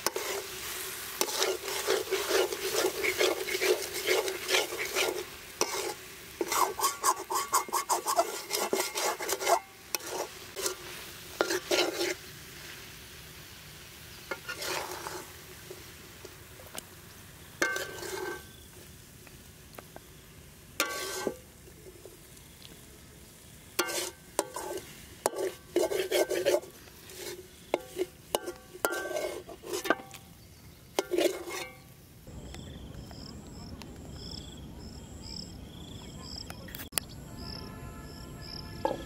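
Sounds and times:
metal spatula scraping a wok: 0.0s - 12.9s, 14.2s - 16.4s, 17.6s - 18.7s, 20.8s - 22.2s, 23.7s - 30.2s, 30.9s - 31.9s, 38.8s - 39.0s.

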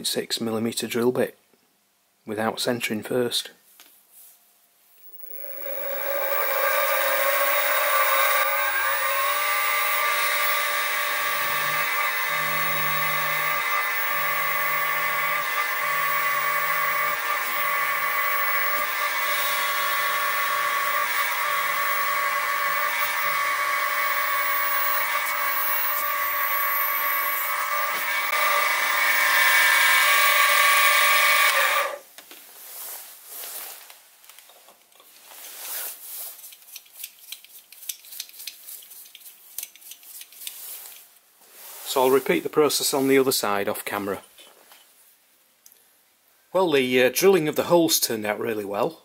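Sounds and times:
mill spindle whining while drilling: 5.0s - 32.0s
clicks and handling sounds: 36.3s - 41.1s.

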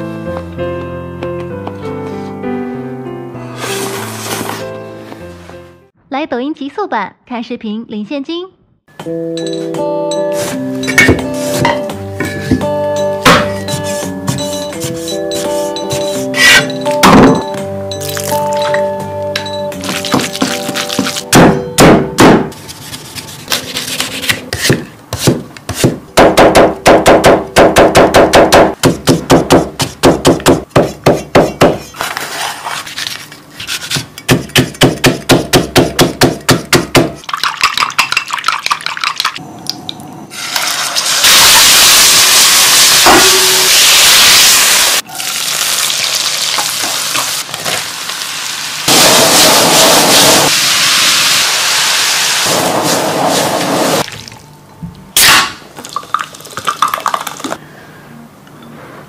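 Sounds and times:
vegetables sizzling in a wok: 40.3s - 54.1s.

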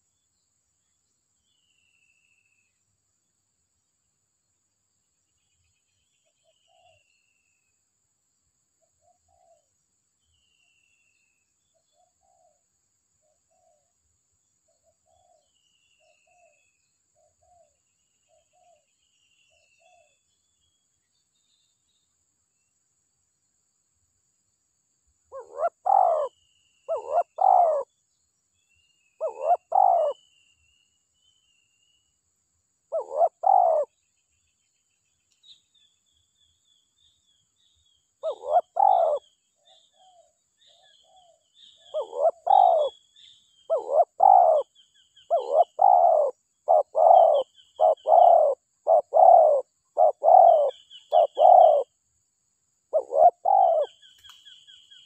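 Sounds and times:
faint high bird chirping: 0.0s - 7.8s, 8.7s - 22.8s, 25.3s - 32.2s, 32.8s - 52.1s, 52.9s - 55.0s
dove cooing: 25.3s - 27.9s, 29.2s - 30.2s, 32.9s - 33.9s, 38.2s - 39.3s, 39.9s - 43.0s, 43.7s - 44.7s, 45.3s - 51.9s, 52.9s - 54.0s.

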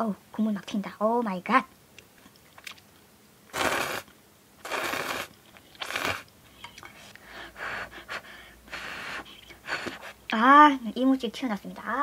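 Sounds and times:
soft small sounds: 1.9s - 7.3s
puffs of breath: 4.7s - 10.2s.

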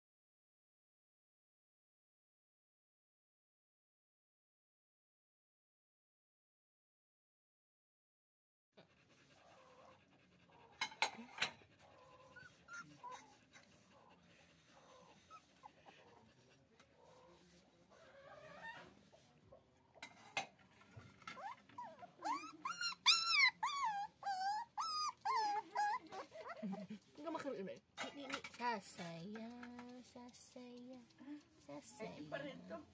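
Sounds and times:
puppy whining: 9.4s - 16.4s, 17.0s - 19.7s, 21.0s - 27.0s.

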